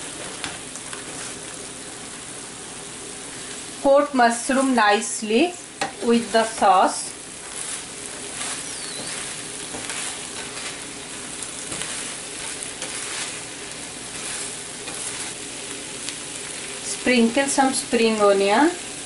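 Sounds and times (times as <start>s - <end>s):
vegetables sizzling in a frying pan: 0.0s - 19.0s
wooden spatula scraping a pan: 0.1s - 1.5s, 5.8s - 15.8s.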